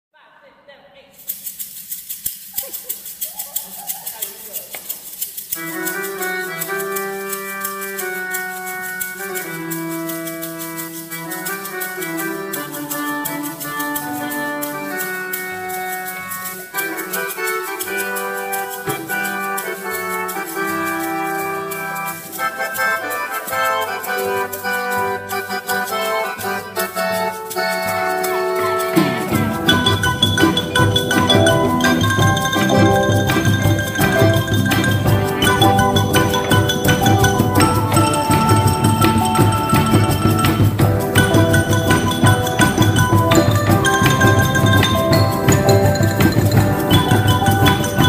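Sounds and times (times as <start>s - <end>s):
percussion ensemble sustained chords: 1.2s - 48.0s
fast even ticking: 22.0s - 48.0s.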